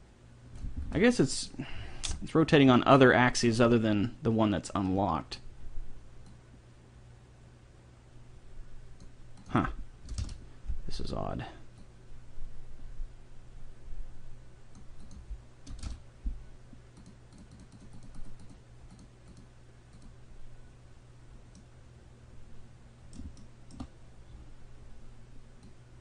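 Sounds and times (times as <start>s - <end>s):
low steady hum: 0.0s - 26.0s
keyboard and mouse clicks: 9.0s - 10.4s, 14.7s - 16.0s, 17.0s - 20.2s, 23.1s - 23.9s.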